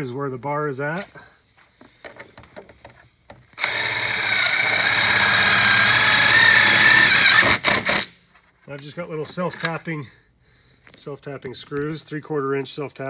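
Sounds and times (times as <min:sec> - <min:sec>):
cordless driver driving screw: 0:03.6 - 0:08.1.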